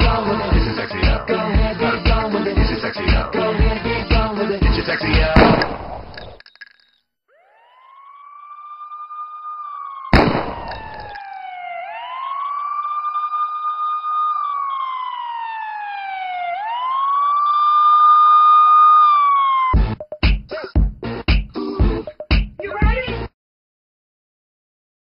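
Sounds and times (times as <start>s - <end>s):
loud bang: 5.4s - 6.2s
siren wailing: 7.3s - 19.9s.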